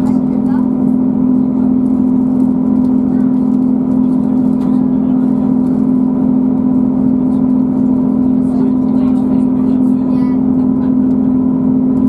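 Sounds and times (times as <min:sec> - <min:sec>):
diesel engine droning: 0:00.0 - 0:12.0
train running noise: 0:00.0 - 0:12.0.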